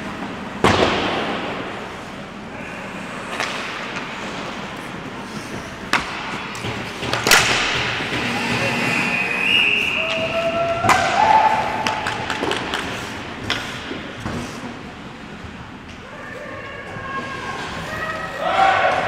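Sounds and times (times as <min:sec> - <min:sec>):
hockey puck and stick cracks: 0:05.9 - 0:14.6.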